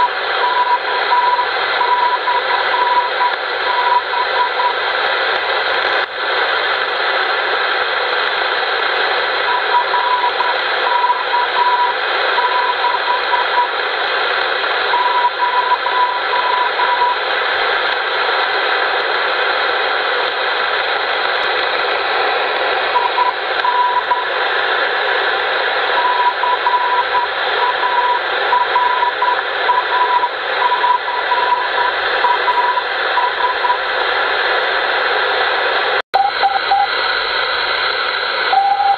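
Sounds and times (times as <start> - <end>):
morse code tone: 0.0 - 4.8, 9.5 - 13.7, 14.9 - 17.2, 23.0 - 24.3, 26.0 - 33.8, 36.2 - 37.0, 38.5 - 38.9
receiver hiss: 0.0 - 38.9.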